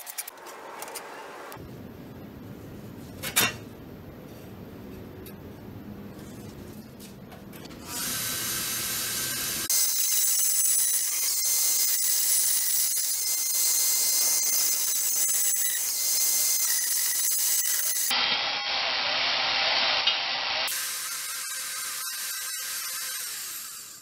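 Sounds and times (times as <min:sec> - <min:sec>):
angle grinder cutting steel: 0:07.9 - 0:24.0.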